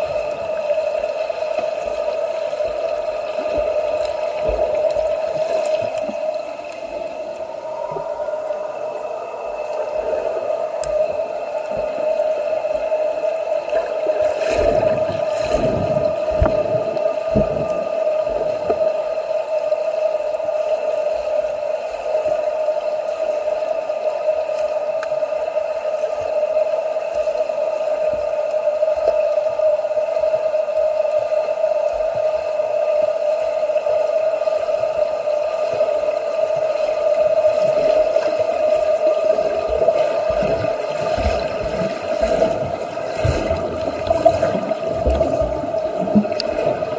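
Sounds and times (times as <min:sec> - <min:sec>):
water splashing in pool: 0:00.0 - 0:19.2, 0:35.6 - 0:46.9
steady hum: 0:00.0 - 0:46.9.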